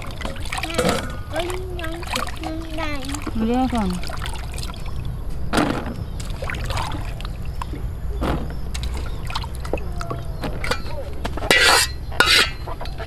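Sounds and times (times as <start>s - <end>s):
hands sloshing seeds in water: 0.0s - 5.0s, 6.2s - 7.8s
water splashes and drips: 0.0s - 10.8s.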